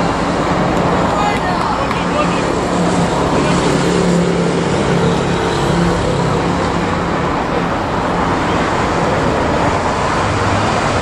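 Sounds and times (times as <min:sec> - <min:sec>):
city traffic roar: 0:00.0 - 0:11.0.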